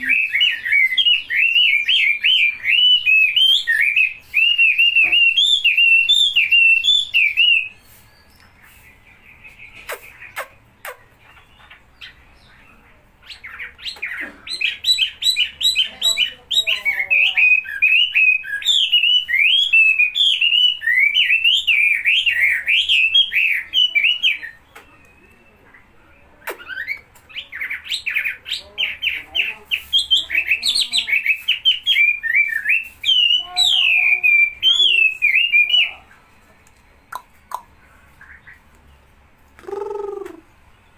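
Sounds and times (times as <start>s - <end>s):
bird singing chattering whistles: 0.0s - 36.1s.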